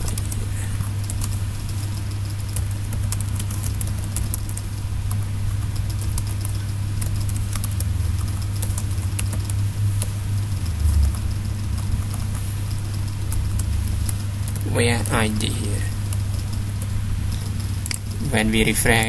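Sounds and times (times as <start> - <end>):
keyboard typing: 0.0 - 19.0
steady low hum: 0.0 - 19.0.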